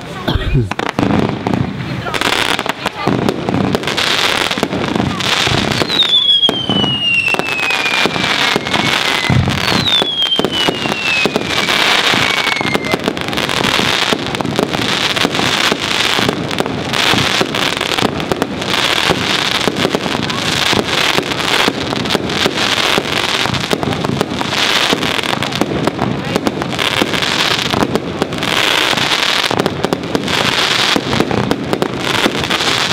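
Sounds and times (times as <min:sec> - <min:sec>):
fireworks bangs and crackling: 0:00.0 - 0:32.9
falling firework whistles: 0:05.4 - 0:14.2.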